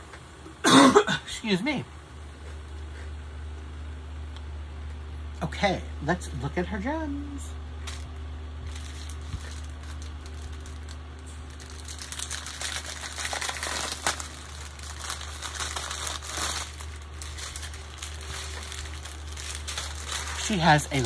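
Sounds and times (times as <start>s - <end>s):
plastic packaging crinkling: 7.8s - 21.0s.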